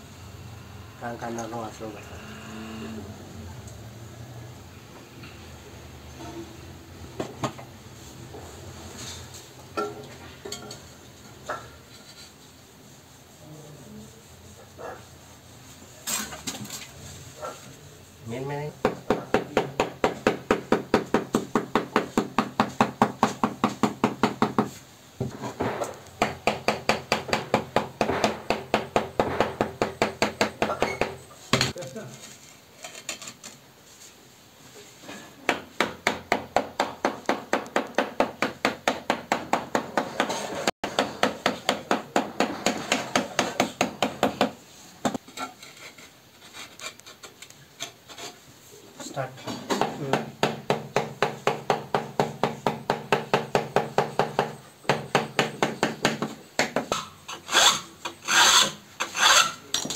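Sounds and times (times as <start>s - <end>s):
loud knock: 25.6s - 30.6s.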